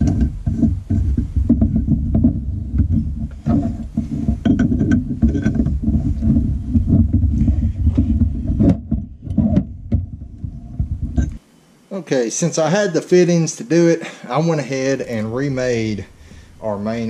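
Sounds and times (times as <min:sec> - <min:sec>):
low rumble of tool work: 0:00.0 - 0:11.5.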